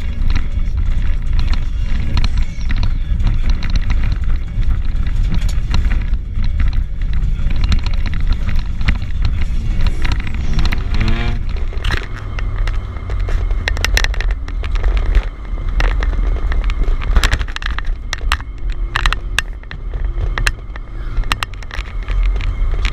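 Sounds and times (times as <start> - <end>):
car engine revving: 0.0 - 22.9
car rumbling on snow: 0.0 - 22.9
knocks and scrapes from car body: 0.0 - 22.9.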